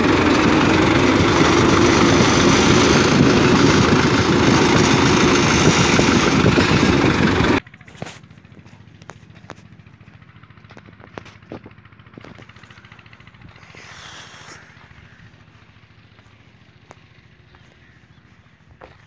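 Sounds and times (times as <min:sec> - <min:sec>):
diesel engine idling: 0:00.0 - 0:19.0
short hiss: 0:13.6 - 0:14.8.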